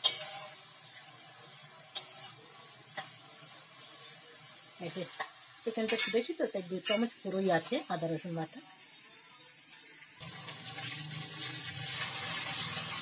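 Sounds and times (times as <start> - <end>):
metal spatula scraping pan: 0.0 - 1.1, 1.9 - 3.1, 5.2 - 7.2
onions sizzling in oil: 0.0 - 13.0.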